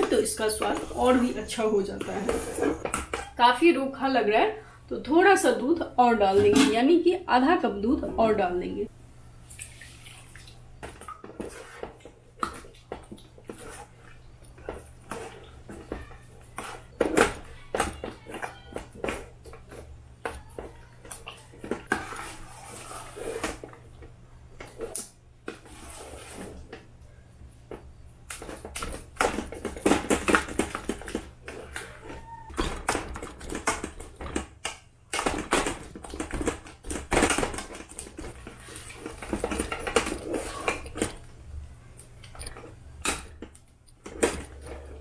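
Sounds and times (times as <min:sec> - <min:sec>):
ladle scraping a saucepan: 0:00.2 - 0:03.2, 0:11.2 - 0:12.6, 0:21.8 - 0:23.8, 0:25.5 - 0:26.8.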